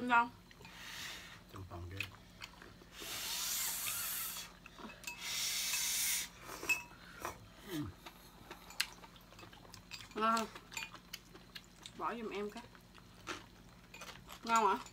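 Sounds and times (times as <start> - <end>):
slurping noodle soup: 2.9 - 4.6.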